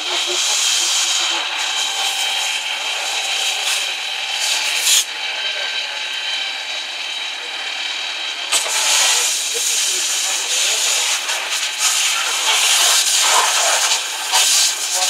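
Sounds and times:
fire hose spraying water: 0.0 - 5.1, 8.5 - 15.0
steam hissing: 0.0 - 15.0.

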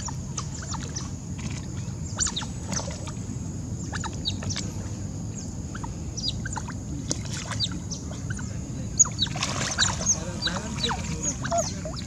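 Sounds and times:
otters chirping: 0.0 - 1.1, 2.0 - 3.0, 3.8 - 4.7, 5.3 - 6.8, 7.5 - 12.0
low steady rumble: 0.0 - 12.0.

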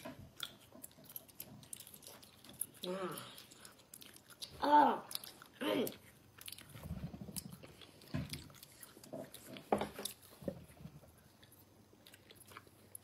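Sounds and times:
chewing with wet mouth smacks: 0.0 - 13.0.

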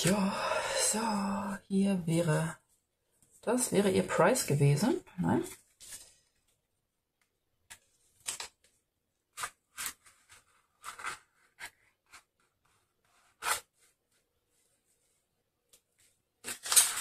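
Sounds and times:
card panels flapping and rustling: 7.6 - 17.0.

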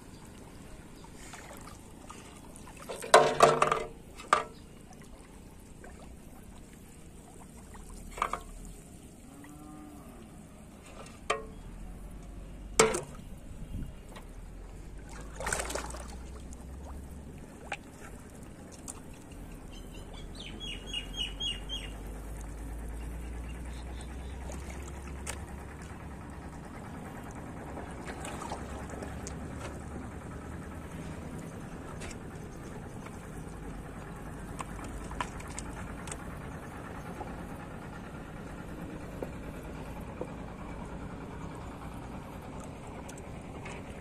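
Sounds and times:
shallow water splashing: 0.0 - 11.6, 14.0 - 19.9, 24.0 - 37.7.

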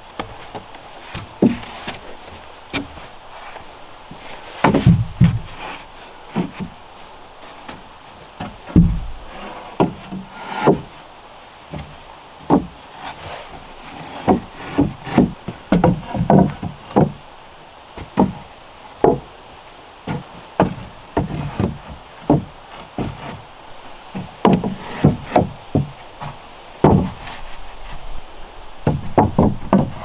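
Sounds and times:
wooden planks knocking on joists: 0.2 - 3.1, 4.1 - 6.8, 7.6 - 11.0, 11.7 - 17.2, 18.0 - 19.4, 20.0 - 23.5, 24.1 - 27.4, 28.8 - 30.0.

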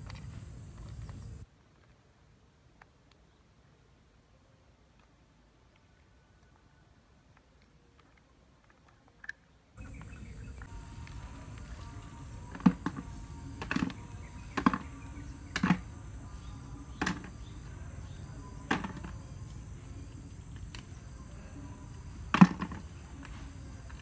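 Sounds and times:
high-pitched insect hum: 0.0 - 1.4, 9.8 - 24.0
shells knocking into plastic basin: 12.4 - 16.0, 16.9 - 17.5, 18.6 - 19.2, 22.2 - 22.9.

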